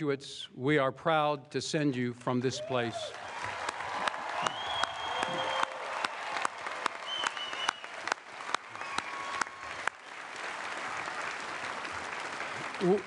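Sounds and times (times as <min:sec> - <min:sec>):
people cheering: 0:02.6 - 0:13.0
audience applauding: 0:03.1 - 0:13.0.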